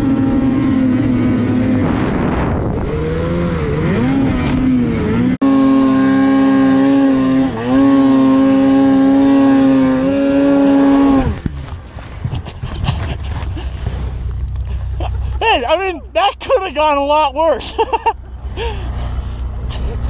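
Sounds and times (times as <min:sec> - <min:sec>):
snowmobile engine revving: 0:00.0 - 0:11.7.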